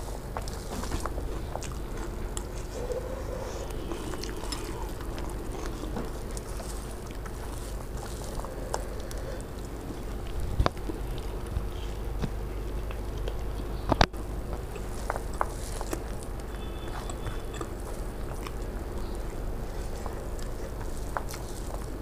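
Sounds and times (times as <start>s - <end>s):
hand mixing puffed rice: 0.0s - 22.0s
steady low hum: 0.0s - 22.0s.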